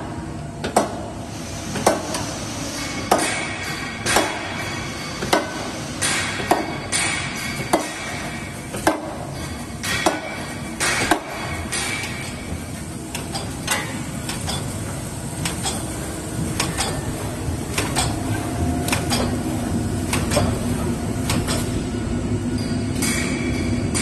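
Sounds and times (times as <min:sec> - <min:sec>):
packaging machine humming: 0:00.0 - 0:22.9
machine clicks and knocks: 0:00.6 - 0:01.0, 0:01.7 - 0:02.3, 0:03.0 - 0:19.4, 0:20.0 - 0:21.8.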